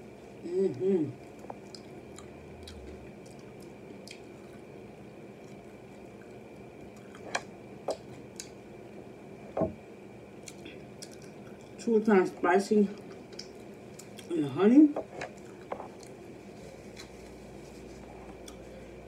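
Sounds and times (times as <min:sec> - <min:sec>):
wet chewing and lip-smacking: 0:01.2 - 0:08.6, 0:10.4 - 0:11.8, 0:13.0 - 0:14.3, 0:15.2 - 0:16.2.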